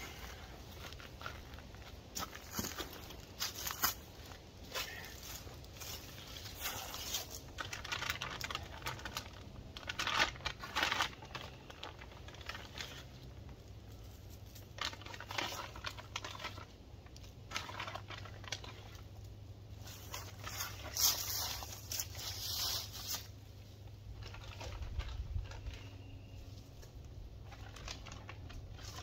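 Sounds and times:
paper bag crinkling and rustling: 5.8s - 13.6s, 14.5s - 19.1s, 24.2s - 26.1s, 27.4s - 29.0s.

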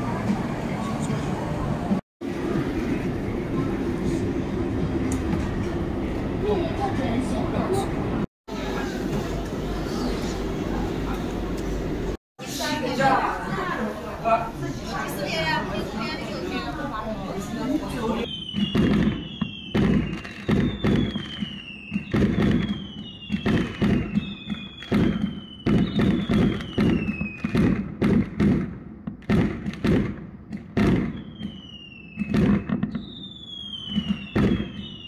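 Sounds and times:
falling firework whistle: 18.2s - 27.8s, 30.8s - 35.0s
fireworks bangs and pops: 18.3s - 35.0s.

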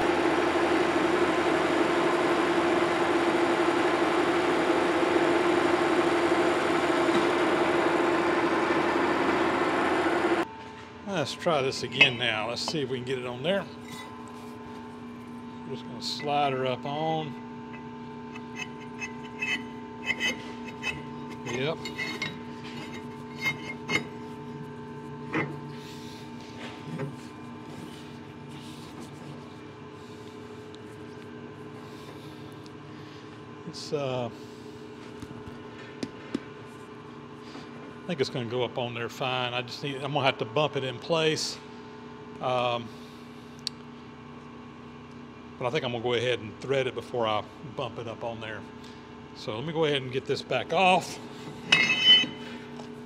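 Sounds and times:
metal lathe running: 0.0s - 10.5s, 11.4s - 12.7s, 15.8s - 26.4s, 50.8s - 52.7s
steady machine hum: 0.0s - 53.0s
metal parts knocking and clinking: 51.7s - 52.4s.

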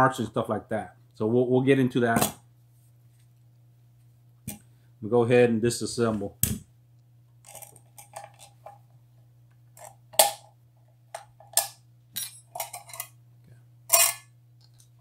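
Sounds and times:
steady low hum: 0.0s - 15.0s
metal parts clicking and clacking: 7.4s - 8.8s, 11.4s - 13.2s, 13.9s - 14.3s.

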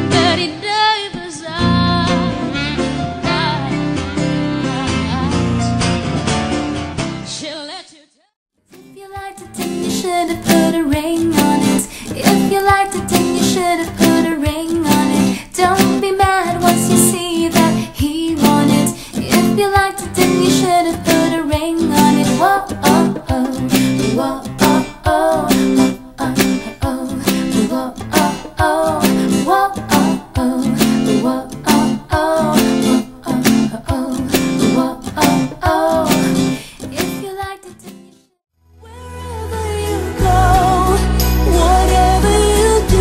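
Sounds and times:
woman singing: 0.0s - 2.6s, 3.2s - 5.6s, 7.3s - 8.2s, 8.8s - 38.0s, 38.8s - 43.0s
strummed acoustic guitar: 1.6s - 7.3s, 8.7s - 38.2s
different song: 8.8s - 38.0s, 38.9s - 43.0s.

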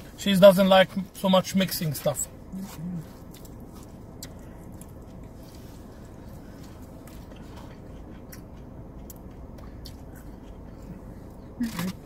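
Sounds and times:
steady low hum: 0.0s - 12.0s
person chewing noodles: 2.5s - 12.0s.

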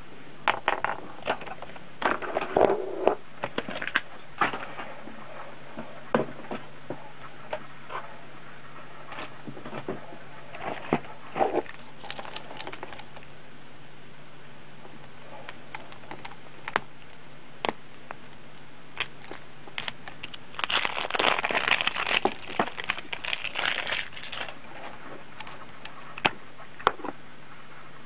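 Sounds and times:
plastic crinkling: 10.5s - 13.3s, 19.0s - 26.3s.

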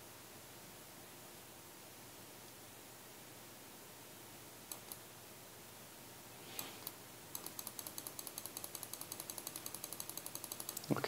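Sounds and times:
steady low hiss: 0.0s - 11.0s
computer mouse clicks: 4.7s - 5.0s, 6.6s - 11.0s
rapid run of ticks: 6.8s - 11.0s.

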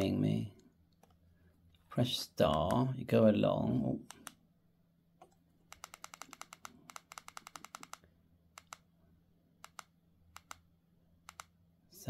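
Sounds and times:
radio keypad buttons clicking: 5.7s - 8.0s.

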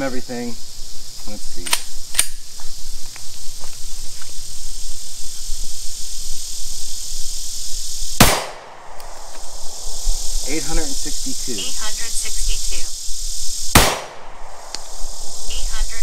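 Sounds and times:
pistol shot: 8.2s - 9.5s, 13.7s - 14.9s.

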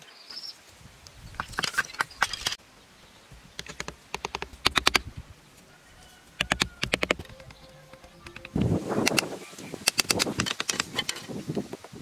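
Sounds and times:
bamboo sticks clicking together: 3.5s - 5.1s, 6.4s - 11.6s.

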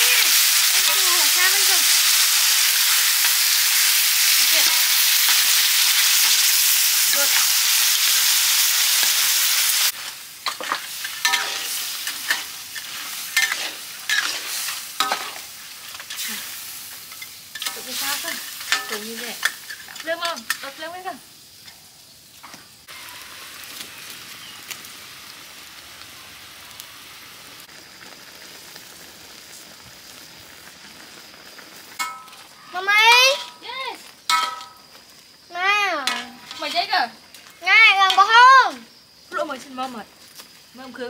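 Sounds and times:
food sizzling: 0.0s - 41.0s
metal spatula scraping wok: 0.2s - 20.9s, 36.0s - 37.0s.

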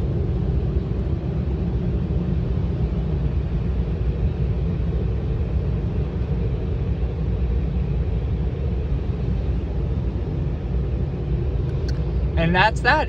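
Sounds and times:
dryer blowers rushing air: 7.8s - 13.0s.

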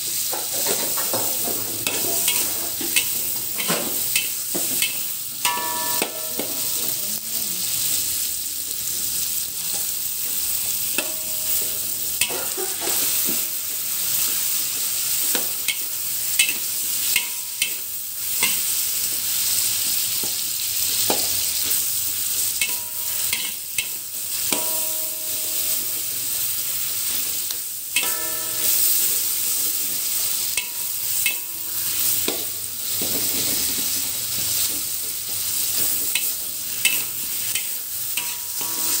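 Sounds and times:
vegetables sizzling in hot oil: 0.0s - 39.0s
metal spatula scraping a pan: 0.2s - 6.8s, 11.0s - 14.3s, 28.0s - 34.7s, 35.3s - 39.0s.

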